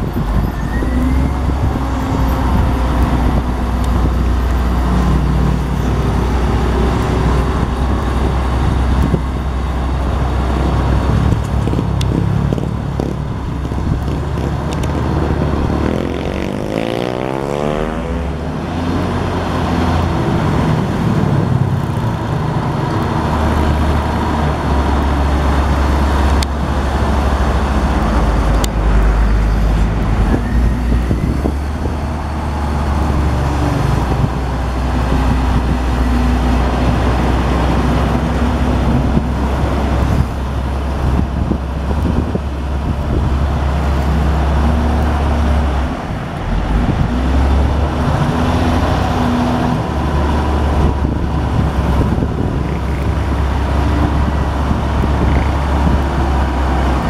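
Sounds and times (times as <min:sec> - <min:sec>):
diesel engine rumbling: 0:00.0 - 0:57.0.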